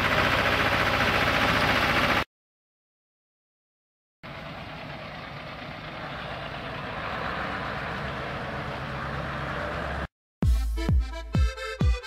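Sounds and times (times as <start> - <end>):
tractor engine running: 0.0 - 2.3, 4.2 - 10.1.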